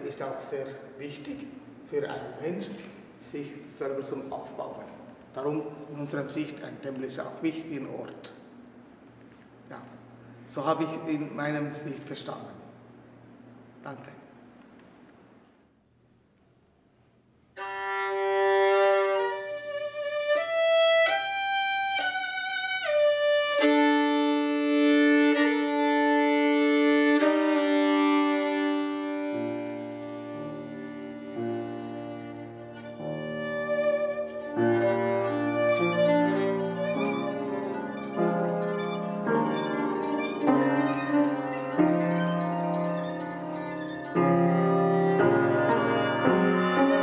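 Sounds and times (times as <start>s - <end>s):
violin bowed notes: 17.6s - 47.0s
piano low notes: 25.2s - 47.0s.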